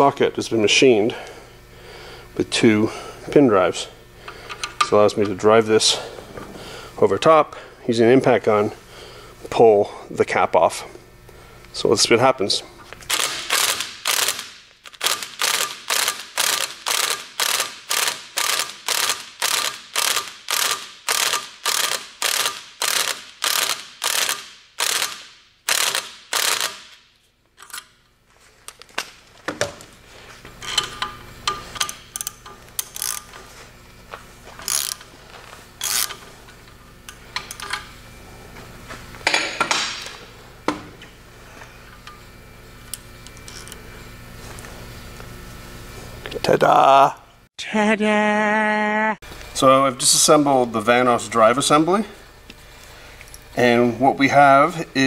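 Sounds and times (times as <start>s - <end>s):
impact wrench hammering: 13.1s - 27.0s.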